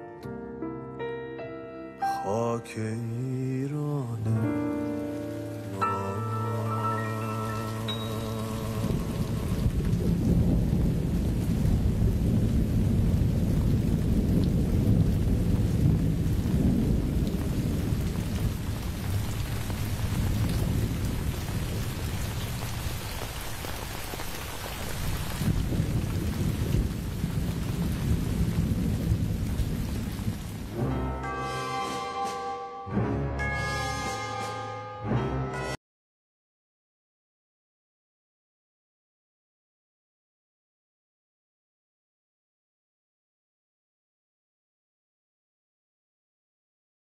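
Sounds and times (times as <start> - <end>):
heavy rain pouring: 2.3 - 34.6
deep rolling thunder: 8.5 - 31.0.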